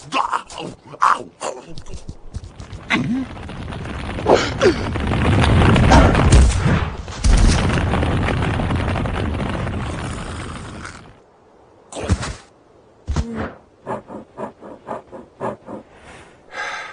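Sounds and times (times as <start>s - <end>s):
boulder rumbling: 1.7s - 15.4s
heavy crash: 2.5s - 11.2s.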